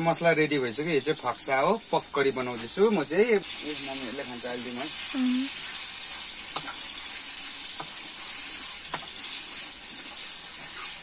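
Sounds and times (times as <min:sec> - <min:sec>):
food sizzling in a metal pan: 0:00.0 - 0:11.0.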